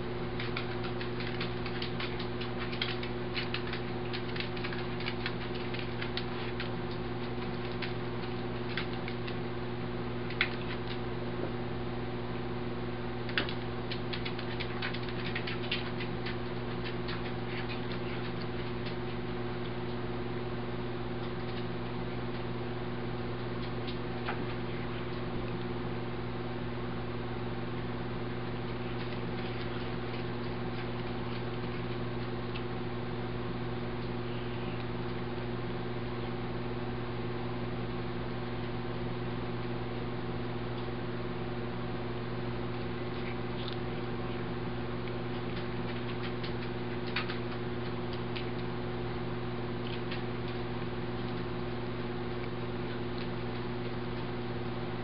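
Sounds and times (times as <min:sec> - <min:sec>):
steady mechanical hum: 0:00.0 - 0:55.0
cat chewing grass: 0:00.2 - 0:09.4, 0:13.4 - 0:19.2.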